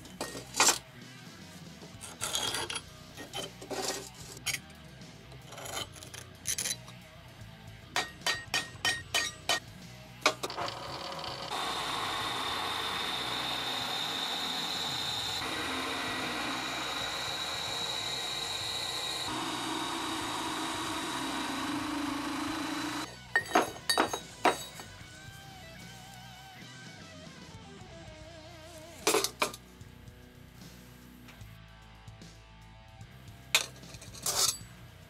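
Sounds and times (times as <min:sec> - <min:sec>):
drill press grinding through steel: 0:10.3 - 0:24.9.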